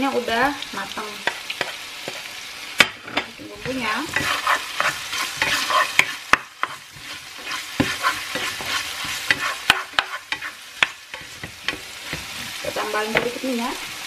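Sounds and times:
chicken sizzling in a frying pan: 0.0 - 14.0
spatula stirring and scraping: 1.2 - 14.0
spatula tapping pan: 2.8 - 13.4.

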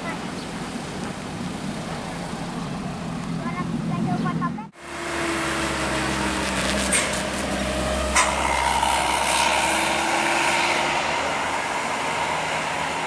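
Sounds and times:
bus engine drone: 0.0 - 13.0.

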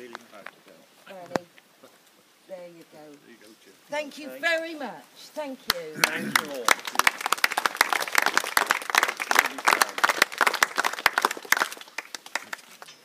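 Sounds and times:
crowd applauding: 6.0 - 12.8.

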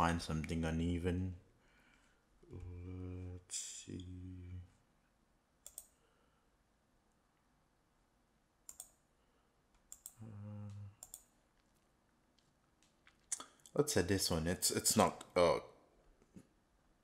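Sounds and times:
low hum of a voice: 2.5 - 4.8, 10.2 - 11.0
computer mouse clicks: 5.6 - 6.0, 8.6 - 9.0, 9.7 - 11.8.

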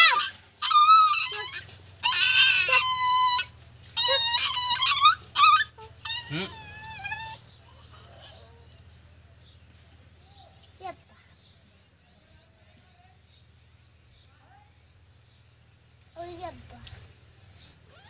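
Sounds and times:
puppy yelping and whining: 0.0 - 8.5.

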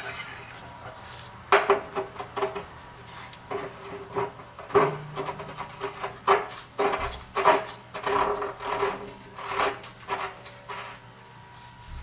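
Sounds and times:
gloved hand scraping metal: 5.2 - 11.0.

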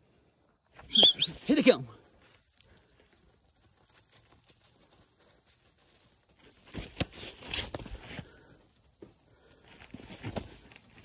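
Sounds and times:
scuffling footsteps: 2.0 - 11.0
rustling on the ground: 2.2 - 11.0.

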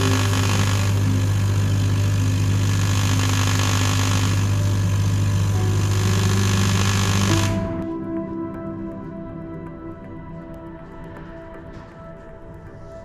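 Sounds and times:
welding arc buzzing: 0.0 - 7.8.

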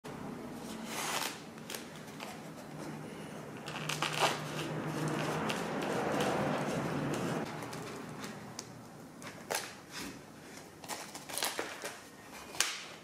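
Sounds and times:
foam parts rustling and scraping: 9.3 - 12.6.

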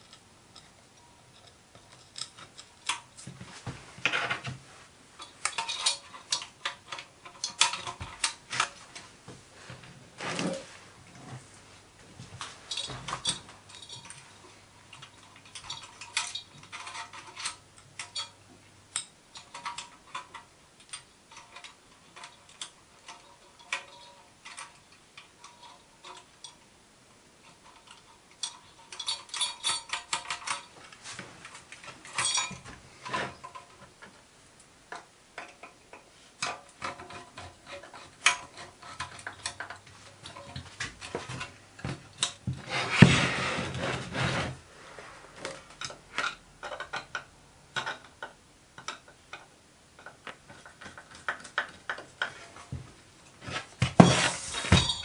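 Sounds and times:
small metal fittings clinking: 5.2 - 8.4, 12.7 - 26.6, 27.5 - 30.8, 32.0 - 32.7, 53.4 - 55.0.

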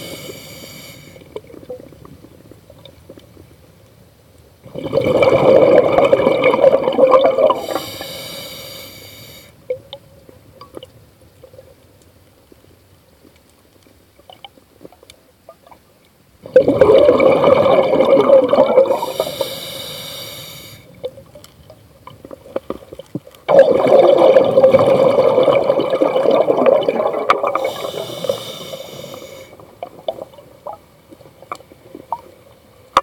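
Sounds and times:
regulator inhale hiss: 0.0 - 1.3, 7.6 - 9.6, 18.9 - 21.0, 27.6 - 29.6
underwater exhalation bubbles: 4.6 - 7.8, 16.4 - 19.3, 23.5 - 28.0.

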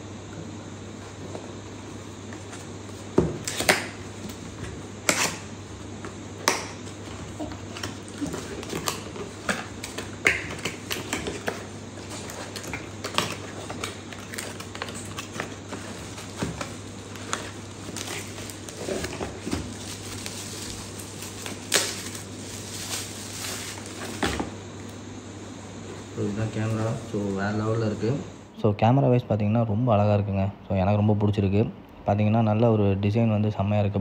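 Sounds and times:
bubble wrap rustling: 6.8 - 24.6.

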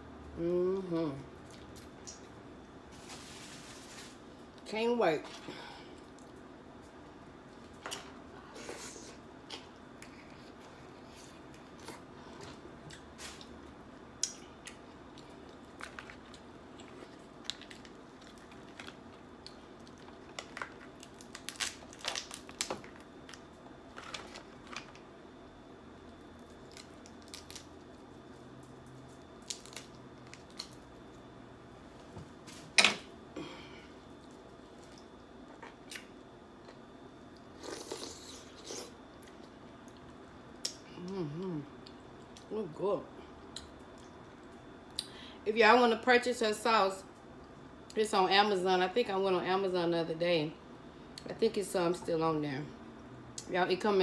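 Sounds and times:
crab legs cracking: 29.4 - 30.8.

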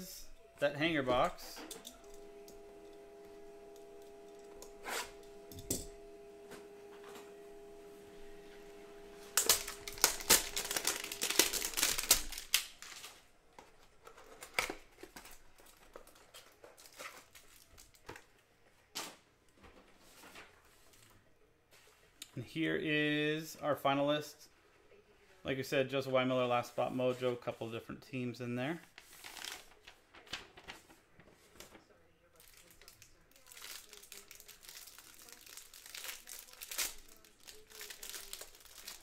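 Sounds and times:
cardboard tearing and crinkling: 9.3 - 13.2, 32.4 - 39.0.

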